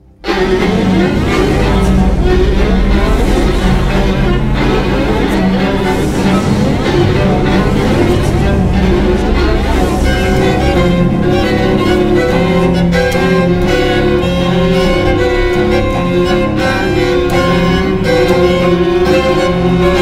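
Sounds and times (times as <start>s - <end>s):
string quartet playing: 0.0s - 20.0s.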